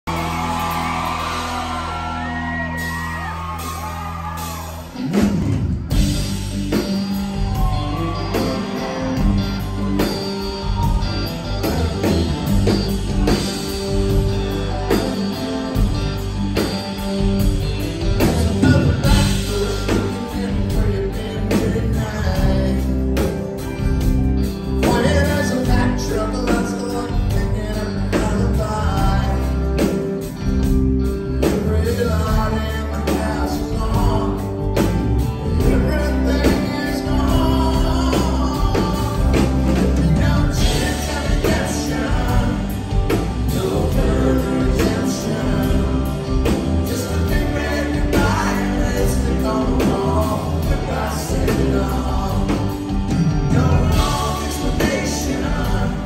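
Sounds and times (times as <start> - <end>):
audience whooping: 0.0 - 20.3
country-rock band playing: 0.0 - 56.0.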